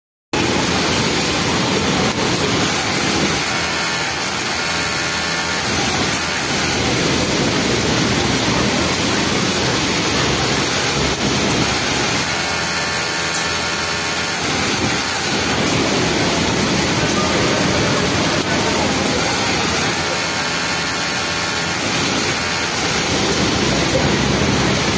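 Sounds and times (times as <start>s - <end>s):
industrial sewing machines running: 0.4s - 24.9s
pitched machine whine: 0.4s - 24.9s.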